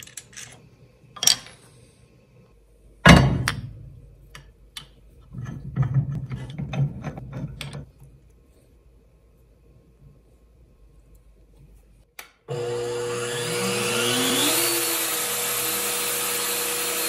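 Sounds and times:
metal parts clicking: 0:00.0 - 0:00.6, 0:01.2 - 0:01.7.

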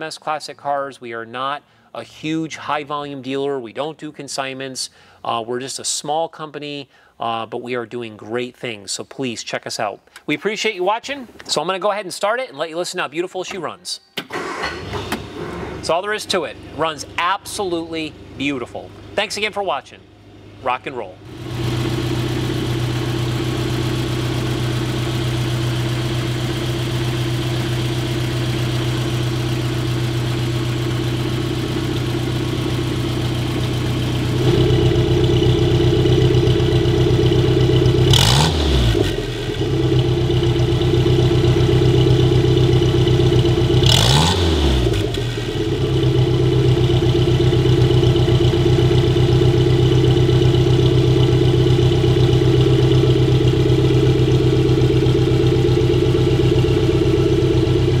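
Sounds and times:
car engine idling and revving: 0:21.2 - 0:58.0.

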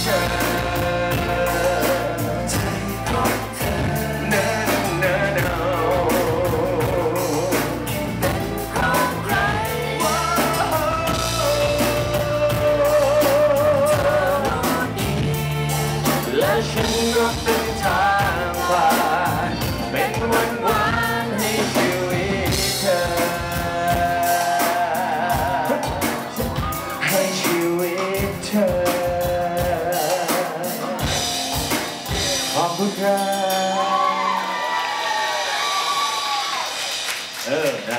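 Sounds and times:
man singing into a microphone: 0:00.0 - 0:31.4, 0:32.1 - 0:34.8
live pop-rock band: 0:00.0 - 0:37.9.

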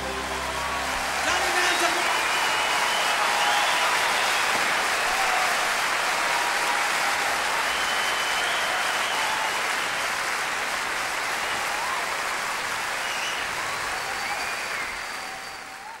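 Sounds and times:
audience applauding: 0:00.0 - 0:16.0
faint whistles: 0:02.1 - 0:04.8, 0:07.6 - 0:09.5, 0:13.0 - 0:16.0.

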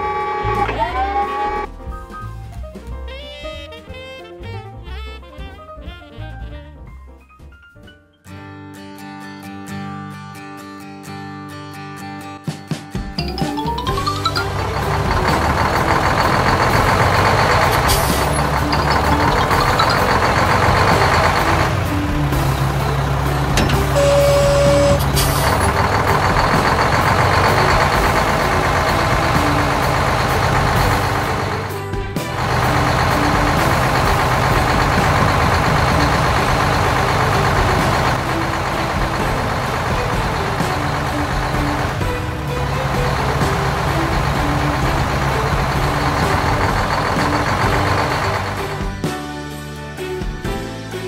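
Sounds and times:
background music: 0:00.0 - 0:51.0
truck engine running: 0:13.2 - 0:49.1
short beep: 0:23.9 - 0:25.5.

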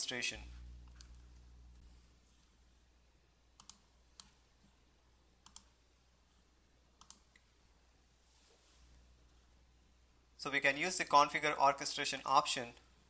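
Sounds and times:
quiet low hum: 0:00.0 - 0:13.0
faint computer mouse clicks: 0:03.6 - 0:04.4, 0:05.4 - 0:05.7, 0:07.0 - 0:07.5.

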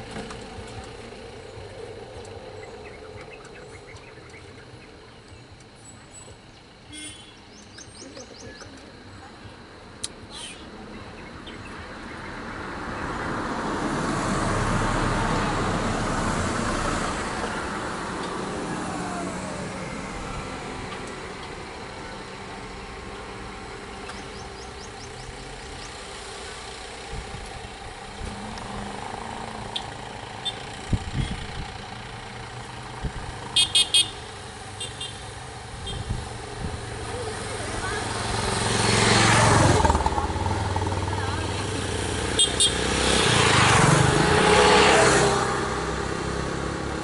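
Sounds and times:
traffic engines running: 0:00.0 - 0:47.0
vehicle horn beeps: 0:06.9 - 0:07.4, 0:29.7 - 0:31.5, 0:33.5 - 0:34.2, 0:34.8 - 0:35.2, 0:35.8 - 0:36.2, 0:42.3 - 0:42.8.

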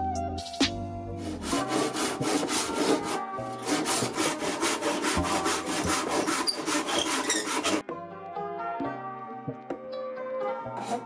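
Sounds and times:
handsaw cutting wood: 0:01.2 - 0:07.8.

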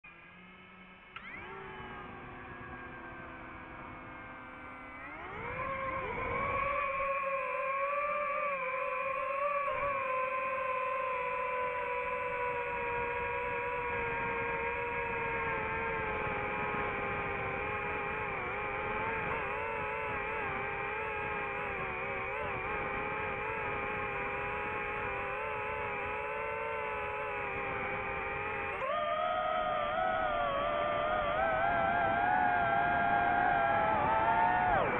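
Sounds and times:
drone motors whining: 0:00.1 - 0:34.9.

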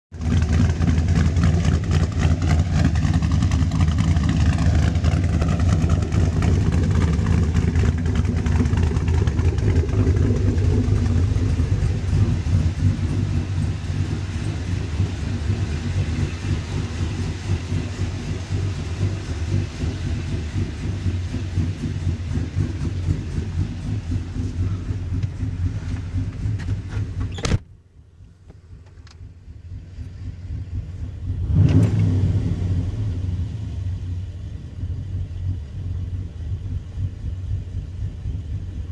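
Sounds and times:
v eight engine idling: 0:00.2 - 0:38.9
door shutting: 0:27.2 - 0:27.7.

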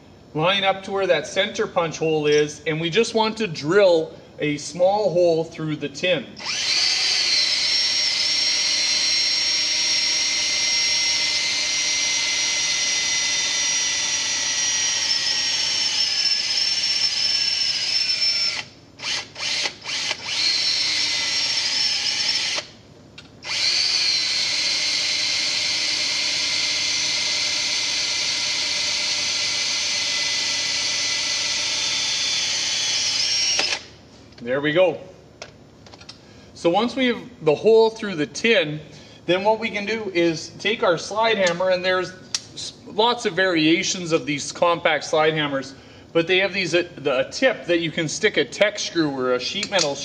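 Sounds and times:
cordless drill whining: 0:06.4 - 0:22.8, 0:23.4 - 0:33.9.

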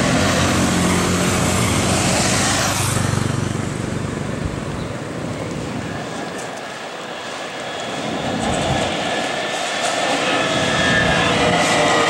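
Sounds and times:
motorcycle passing: 0:00.0 - 0:05.8
distant street traffic: 0:00.0 - 0:12.0.

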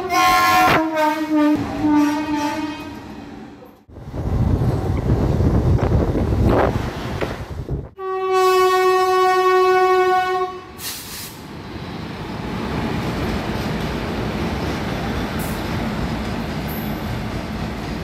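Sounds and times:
train horn blast: 0:00.0 - 0:03.1, 0:08.0 - 0:11.0
train wheels rumbling on rails: 0:02.8 - 0:08.0, 0:10.8 - 0:18.0
short hiss: 0:10.8 - 0:11.4.

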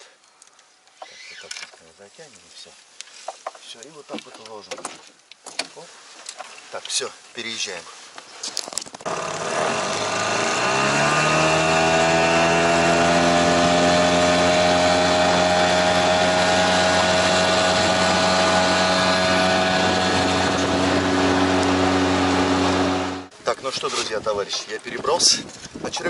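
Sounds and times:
outboard motor revving: 0:09.0 - 0:23.3.

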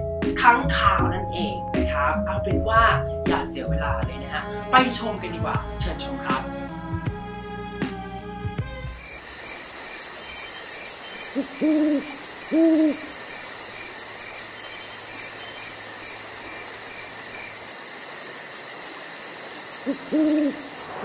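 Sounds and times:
night insects hissing: 0:08.7 - 0:21.0
high insect chirp: 0:08.8 - 0:21.0
owl hooting: 0:08.9 - 0:21.0.

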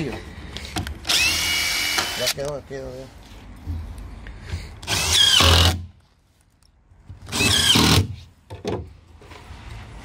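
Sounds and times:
cordless drill driving screws: 0:01.0 - 0:02.4, 0:04.8 - 0:05.8, 0:07.3 - 0:08.2.

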